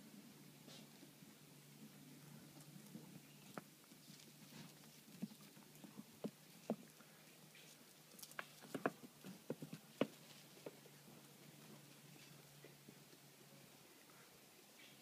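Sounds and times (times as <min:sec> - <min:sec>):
faint steady hum: 0:00.0 - 0:15.0
clicks and scrapes on stony ground: 0:02.4 - 0:12.8.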